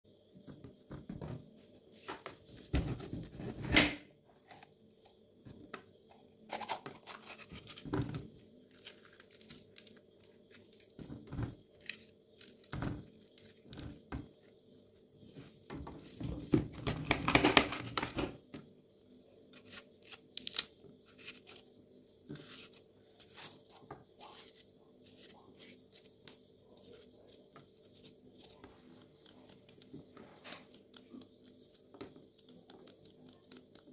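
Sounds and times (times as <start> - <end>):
bell pepper tearing and cracking: 8.7 - 11.0, 19.6 - 21.6.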